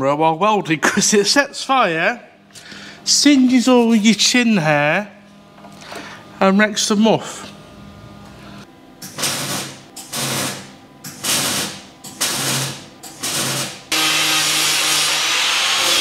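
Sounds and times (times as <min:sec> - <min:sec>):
mig welder crackling: 0:09.0 - 0:16.0
angle grinder on steel: 0:13.9 - 0:16.0.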